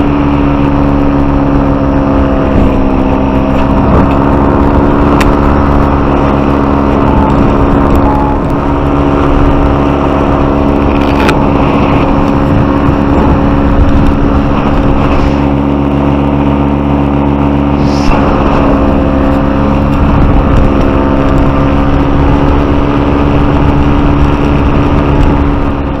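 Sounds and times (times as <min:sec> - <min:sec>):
paramotor engine and propeller: 0:00.0 - 0:26.0.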